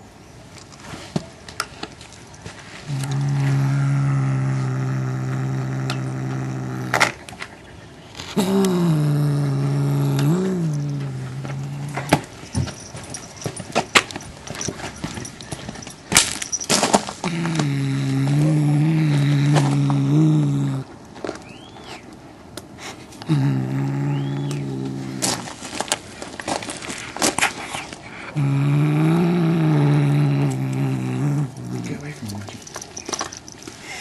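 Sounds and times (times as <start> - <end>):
cat growling low: 2.9 - 7.2, 8.4 - 12.4, 17.2 - 20.9, 23.2 - 25.6, 28.3 - 33.5.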